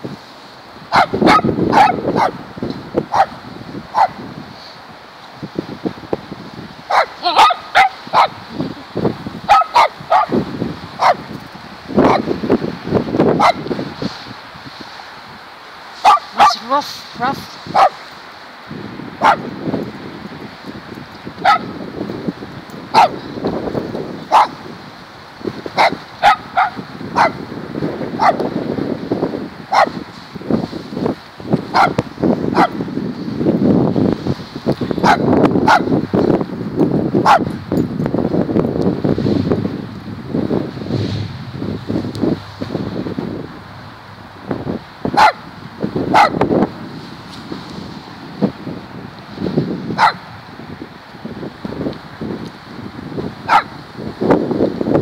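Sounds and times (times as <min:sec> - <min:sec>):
small dog barking: 0:00.9 - 0:02.4, 0:03.1 - 0:04.2, 0:06.9 - 0:08.4, 0:09.5 - 0:10.4, 0:11.0 - 0:11.2, 0:12.0 - 0:12.3, 0:13.4 - 0:13.6, 0:16.0 - 0:16.7, 0:17.7 - 0:18.0, 0:19.2 - 0:19.4, 0:21.4 - 0:21.7, 0:22.9 - 0:23.2, 0:24.3 - 0:24.6, 0:25.8 - 0:27.4, 0:28.2 - 0:28.4, 0:29.7 - 0:30.0, 0:31.7 - 0:32.8, 0:35.0 - 0:35.9, 0:37.2 - 0:37.6, 0:45.1 - 0:45.5, 0:46.1 - 0:46.4, 0:50.0 - 0:50.2, 0:53.5 - 0:53.8.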